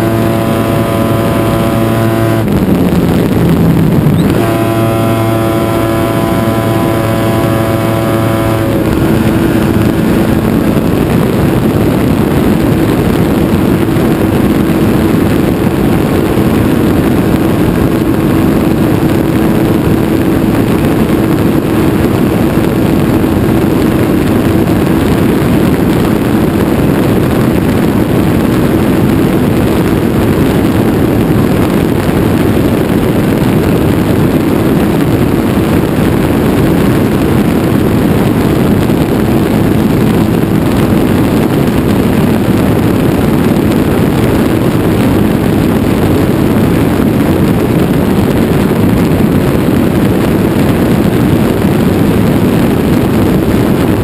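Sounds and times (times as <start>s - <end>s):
light aircraft engine droning: 0.0s - 54.0s
wind rush on microphone: 0.0s - 54.0s.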